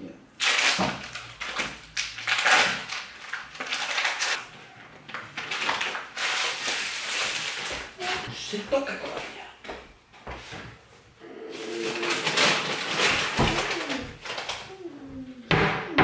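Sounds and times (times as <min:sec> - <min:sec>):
plastic packaging crinkling: 0:00.4 - 0:08.2, 0:11.6 - 0:14.8.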